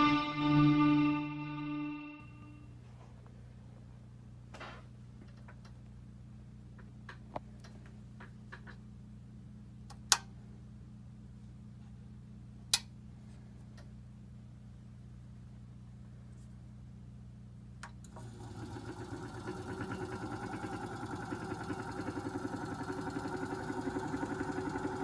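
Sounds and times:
low electrical hum: 0.0s - 18.4s.

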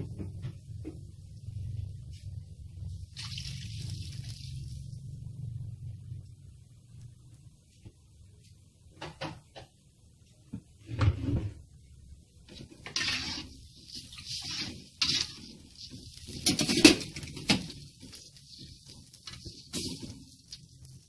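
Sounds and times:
metal spatula scraping a wok: 12.5s - 21.0s.

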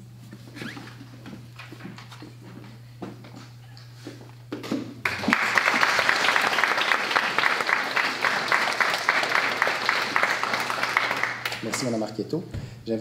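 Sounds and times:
small audience clapping: 5.0s - 12.1s.

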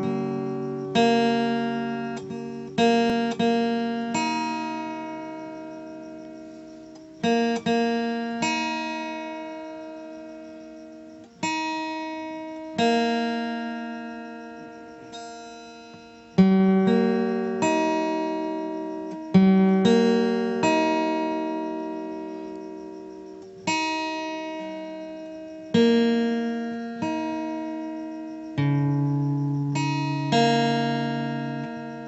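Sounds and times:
plucked guitar chords: 0.0s - 32.0s.

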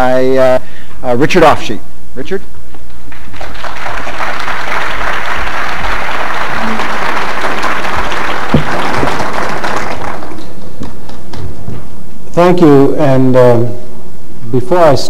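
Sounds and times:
audience applauding: 3.1s - 11.4s
sharp knock: 8.5s - 8.8s.

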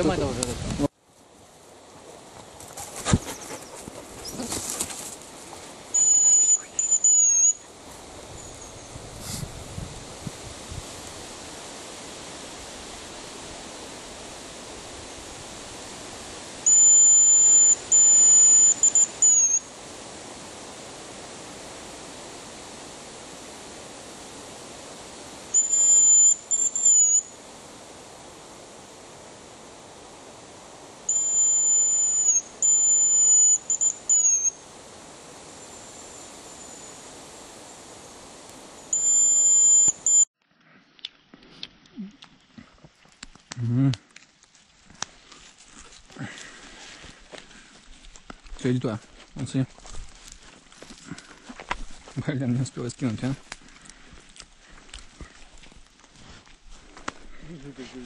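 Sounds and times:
loud high-pitched whistle: 5.9s - 7.6s, 16.6s - 19.7s, 25.5s - 27.4s, 31.1s - 34.6s, 38.9s - 40.3s.

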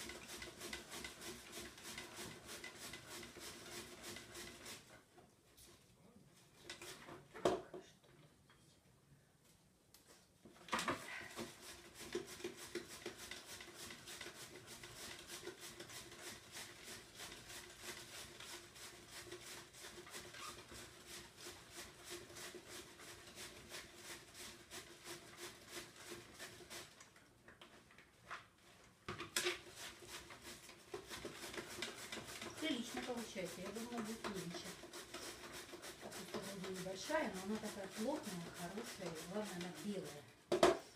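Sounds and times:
cabbage being shredded: 0.0s - 4.9s, 11.4s - 27.0s, 29.6s - 40.4s.

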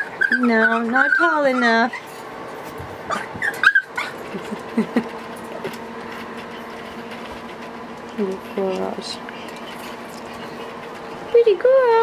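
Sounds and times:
puppies whimpering: 0.0s - 2.2s, 3.0s - 4.8s, 8.5s - 11.3s
steady low hum: 0.0s - 12.0s.

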